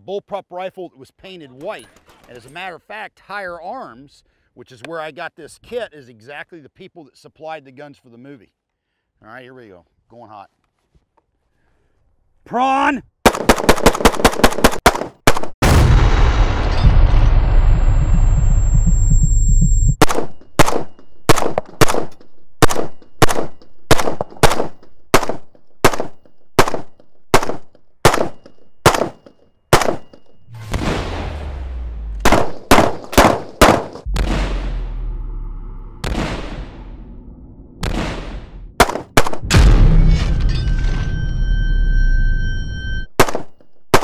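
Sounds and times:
rifle firing single shots: 20.0 - 30.2, 32.2 - 34.1, 38.8 - 39.4, 43.2 - 44.0.

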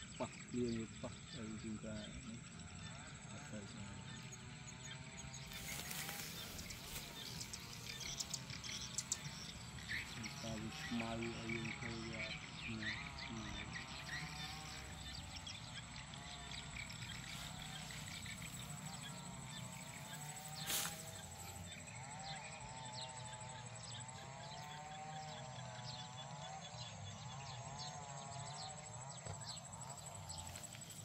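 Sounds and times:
wavering animal calls: 0.0 - 25.8
high insect whine: 0.0 - 31.0
rustling: 5.5 - 8.0, 19.7 - 21.6
short insect chirps: 17.0 - 21.7.

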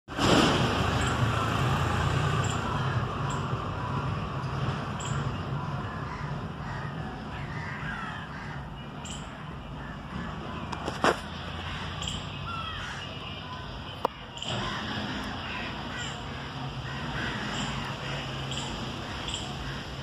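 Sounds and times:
steady background rush: 0.3 - 20.0
crows cawing: 5.6 - 8.8, 9.4 - 10.5, 11.5 - 13.2, 14.2 - 20.0.

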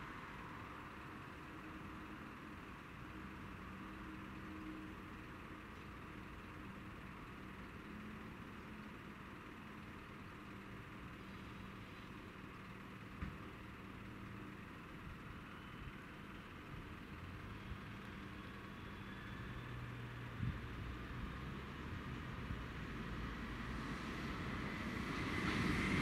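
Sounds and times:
electric train hum: 15.3 - 26.0.

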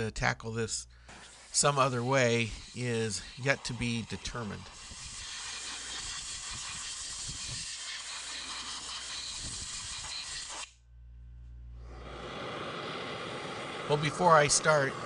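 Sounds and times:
die grinder hissing: 1.0 - 10.7, 11.8 - 15.0
low hum: 10.7 - 15.0.

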